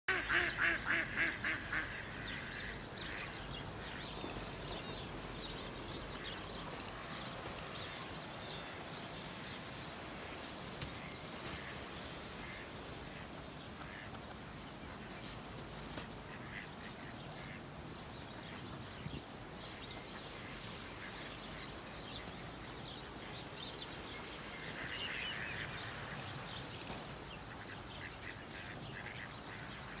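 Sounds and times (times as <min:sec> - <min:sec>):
ducks quacking: 0:00.1 - 0:04.9, 0:16.3 - 0:17.6.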